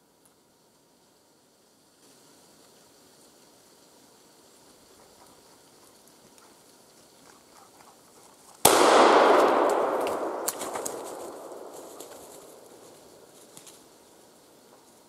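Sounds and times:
gunshot with echo: 8.6 - 13.3.

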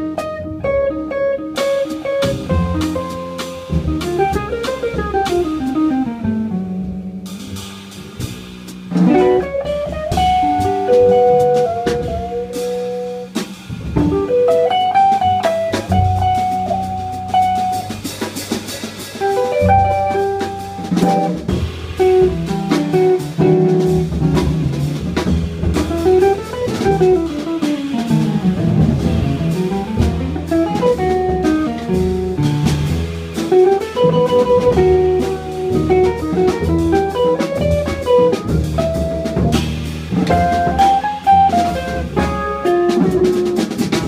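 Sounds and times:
electric guitar melody: 0.0 - 7.2, 8.9 - 13.3, 14.0 - 18.0, 19.2 - 44.0
drum kit with cymbals: 0.0 - 44.0
upright double bass: 0.0 - 44.0.

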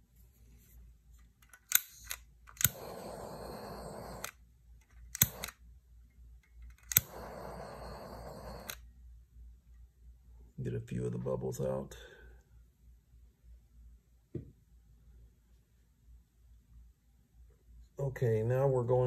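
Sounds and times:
torch switch click: 1.7 - 4.4, 5.1 - 5.6, 6.9 - 8.8
torch flame hissing: 2.6 - 4.3, 5.2 - 5.5, 7.0 - 8.8.

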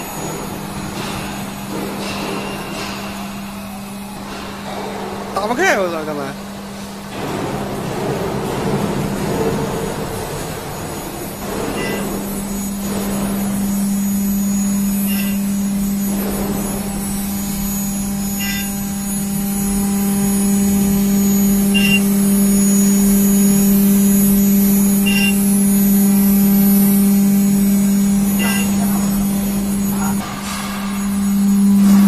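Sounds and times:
milling spindle humming: 0.0 - 32.0
high cutting chirp: 15.1 - 15.5, 18.4 - 18.8, 21.7 - 22.1, 25.0 - 25.4, 28.4 - 29.2.

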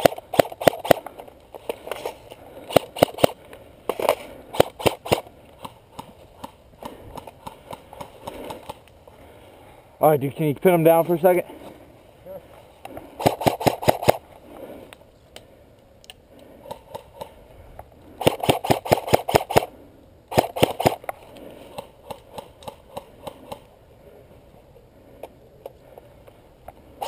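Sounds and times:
airsoft rifle automatic fire: 0.0 - 1.0, 2.7 - 3.4, 4.0 - 5.3, 13.2 - 14.2, 18.2 - 19.7, 20.3 - 21.0
faint scattered clicks: 12.5 - 19.7, 20.6 - 23.8, 24.4 - 26.9.

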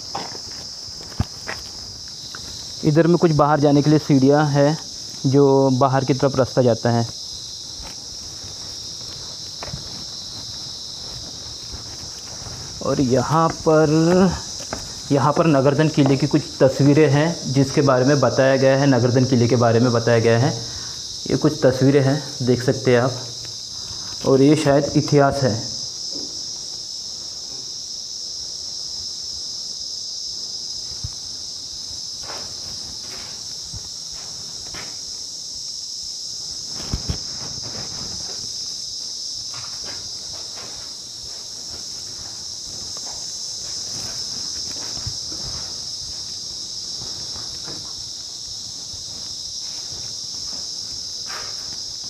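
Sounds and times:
soft knocks or footsteps: 0.0 - 2.8, 7.0 - 17.2, 25.8 - 27.7, 36.6 - 52.0
high-pitched insect chorus: 0.0 - 52.0.

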